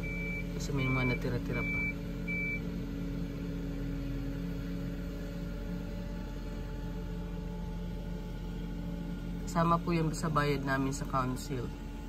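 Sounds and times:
reversing beep: 0:00.0 - 0:02.7.

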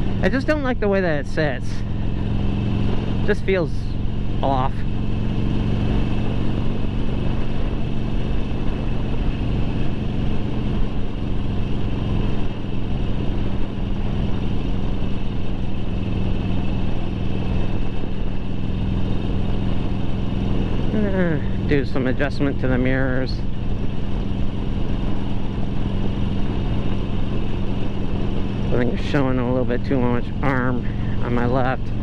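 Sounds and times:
motorcycle engine cruising: 0:00.0 - 0:32.0
road and wind noise: 0:00.0 - 0:32.0.

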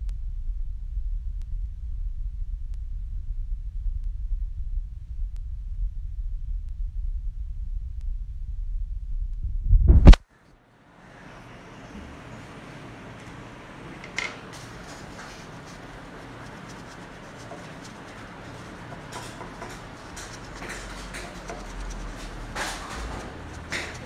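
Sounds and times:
room noise: 0:09.6 - 0:24.0
crayon scratching on paper: 0:14.5 - 0:24.0.

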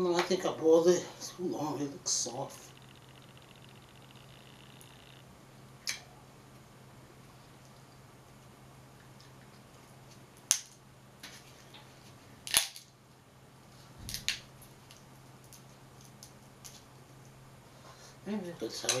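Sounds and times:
low hum: 0:00.0 - 0:17.9
crab shell cracking: 0:12.4 - 0:12.9.

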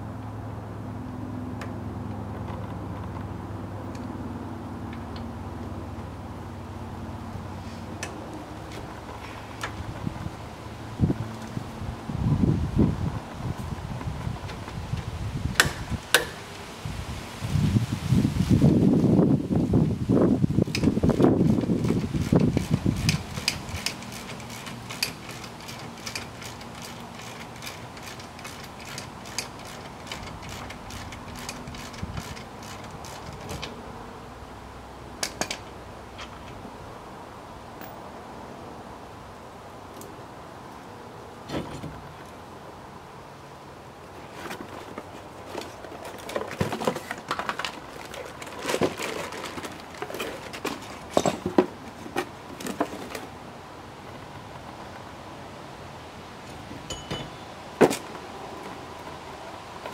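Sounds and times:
socket ratchet clicking: 0:21.8 - 0:33.6
cardboard and plastic rustling: 0:44.1 - 0:53.4.

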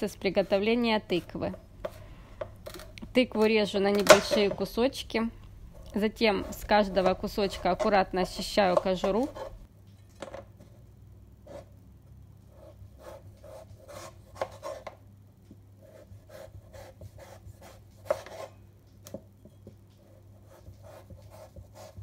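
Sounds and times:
knife scraping on cutting board: 0:06.3 - 0:09.7, 0:16.8 - 0:18.6.

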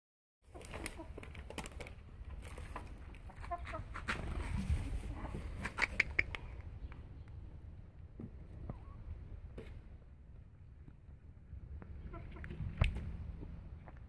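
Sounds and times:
hens clucking: 0:00.5 - 0:01.5, 0:02.6 - 0:07.0, 0:11.8 - 0:13.1.

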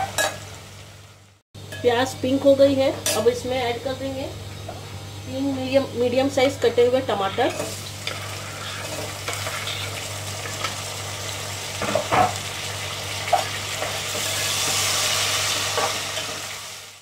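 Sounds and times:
tomatoes sizzling in hot oil: 0:00.0 - 0:17.0
steel spoon scraping a pot: 0:07.2 - 0:10.0.

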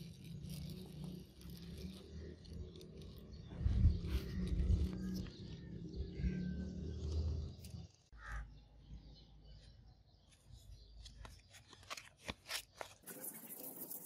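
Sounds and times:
sandpaper rasping on metal blade: 0:13.0 - 0:14.0.

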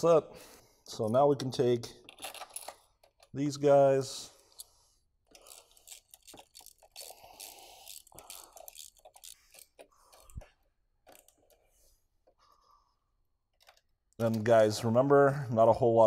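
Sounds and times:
small metal hardware clicking: 0:05.3 - 0:11.6.

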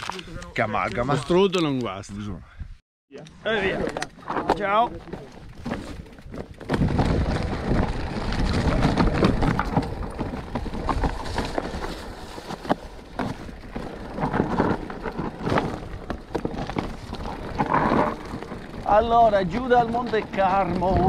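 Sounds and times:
bike rattling: 0:03.5 - 0:21.0
tyres crunching over stones: 0:04.2 - 0:21.0
wind buffeting microphone: 0:16.6 - 0:21.0.

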